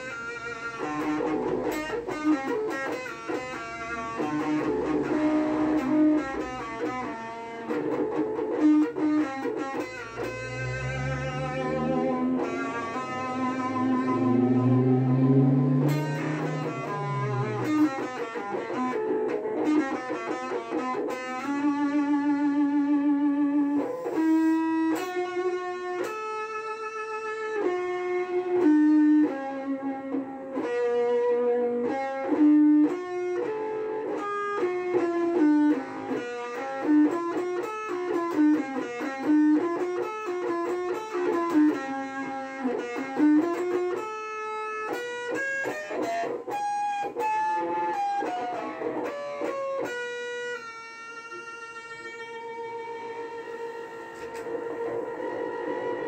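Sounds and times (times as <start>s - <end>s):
guitar lead melody: 0.0s - 56.0s.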